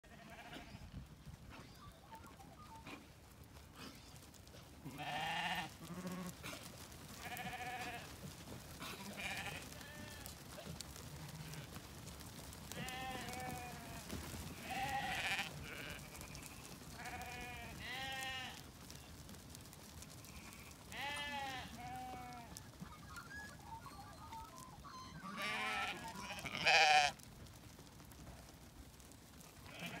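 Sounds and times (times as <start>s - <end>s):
sheep bleating: 0.1s - 0.8s, 4.8s - 6.6s, 7.2s - 8.1s, 8.8s - 10.4s, 12.7s - 18.6s, 20.3s - 22.6s, 25.1s - 27.3s, 29.7s - 30.0s.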